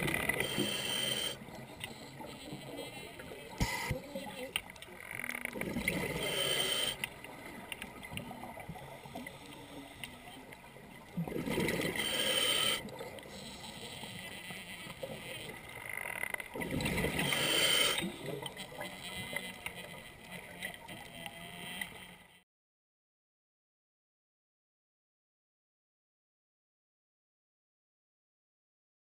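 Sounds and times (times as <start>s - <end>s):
exhaled bubbles bursting underwater: 11.1s - 12.0s, 16.5s - 17.3s.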